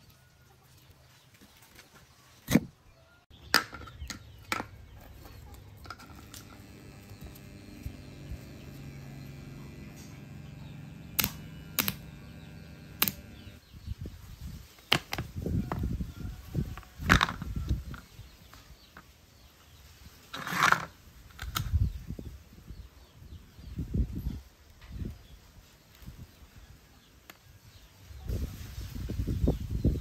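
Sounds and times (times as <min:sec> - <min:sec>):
transformer humming: 0:05.7 - 0:13.6
sharp clicks: 0:05.9 - 0:13.6.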